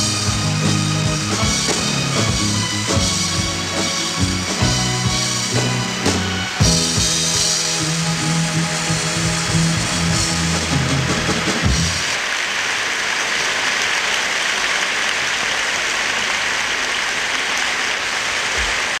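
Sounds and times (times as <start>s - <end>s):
pop band with drums: 0.0s - 12.2s
audience applause: 0.0s - 19.0s.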